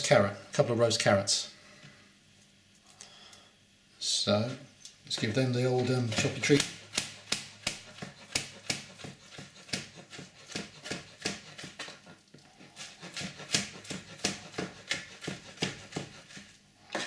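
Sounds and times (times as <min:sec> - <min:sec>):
knife slicing on chopping board: 0:06.1 - 0:12.1, 0:12.7 - 0:17.0.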